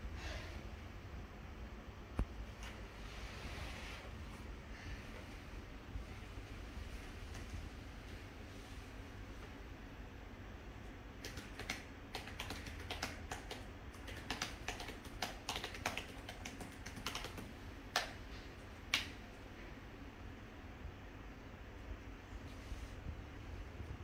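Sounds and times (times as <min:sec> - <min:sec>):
laptop keyboard typing: 0:11.2 - 0:18.2.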